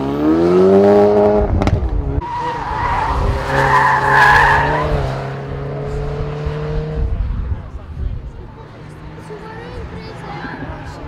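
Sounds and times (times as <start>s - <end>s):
car engine revving: 0.0s - 11.0s
exhaust crack: 1.4s - 3.6s
tyres squealing: 2.2s - 4.8s.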